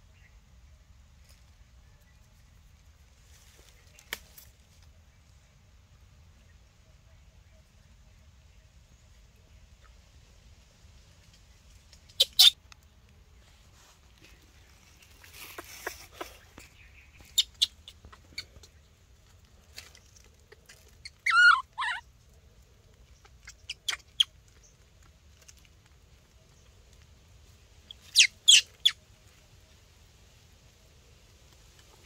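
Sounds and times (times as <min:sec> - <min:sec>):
baby monkey squealing: 0:12.1 - 0:12.6, 0:17.2 - 0:18.4, 0:20.6 - 0:22.0, 0:23.3 - 0:24.3, 0:27.9 - 0:29.0.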